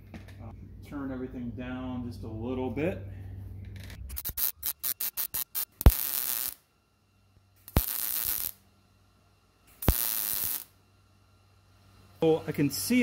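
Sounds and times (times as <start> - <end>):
welding arc popping: 4.0 - 6.7, 7.6 - 8.7, 9.7 - 10.8.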